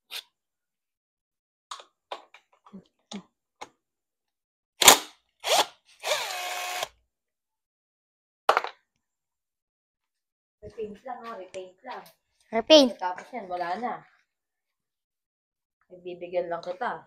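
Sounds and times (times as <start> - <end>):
impact wrench whirring: 4.8 - 6.9.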